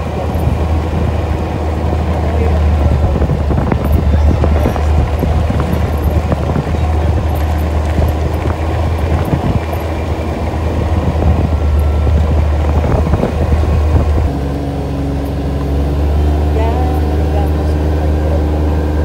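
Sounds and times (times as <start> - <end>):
atv engine running: 0.0 - 19.0
knocks and rattles: 2.0 - 16.0.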